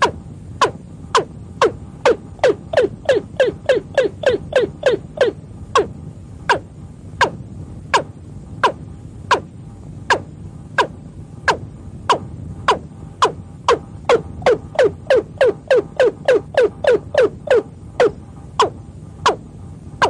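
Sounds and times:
bird calling: 0.0 - 5.9, 12.7 - 19.4
low steady hum: 0.0 - 20.0.

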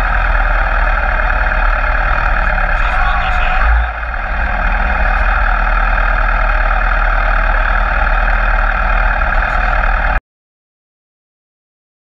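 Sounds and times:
engine noise at speed: 0.0 - 10.2.

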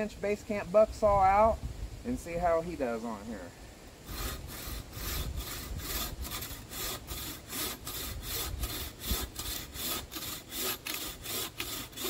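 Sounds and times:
saw rasping through wood: 4.0 - 12.0.

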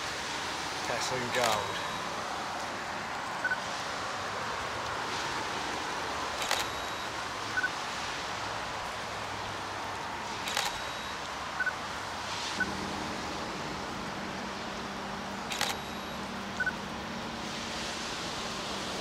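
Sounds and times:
steady hiss: 0.0 - 19.0
camera shutter click: 6.4 - 6.9, 10.4 - 11.0, 15.5 - 16.0
camera double beep: 6.4 - 7.8, 10.4 - 11.8, 15.5 - 16.8.

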